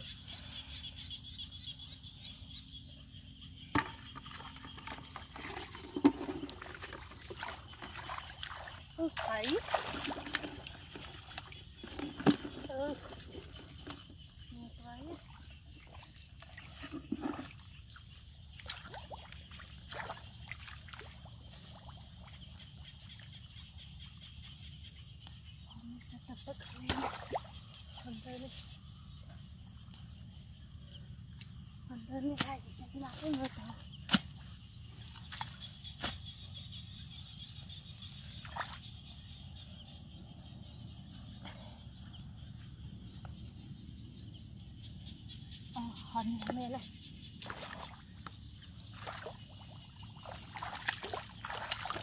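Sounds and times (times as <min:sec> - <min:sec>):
metal pipe knocking on mud: 0:03.7 - 0:06.6
wet squelches and splashes: 0:04.8 - 0:13.6, 0:15.1 - 0:23.5, 0:26.6 - 0:28.7, 0:33.1 - 0:36.3, 0:37.9 - 0:39.0, 0:47.3 - 0:52.0
spade chopping into mud: 0:34.1 - 0:34.4
water trickling: 0:48.9 - 0:52.0.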